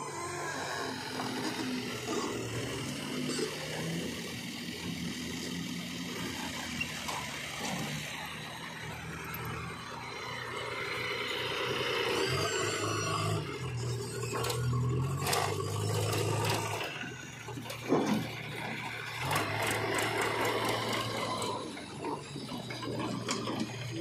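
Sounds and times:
diesel engines running: 0.0 - 24.0.

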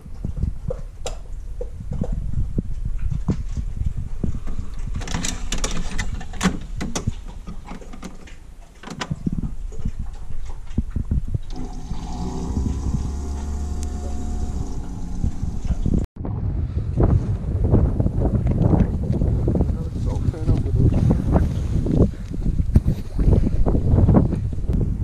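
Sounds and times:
coffee machine pump humming: 11.5 - 16.1
water hissing: 11.5 - 16.1.

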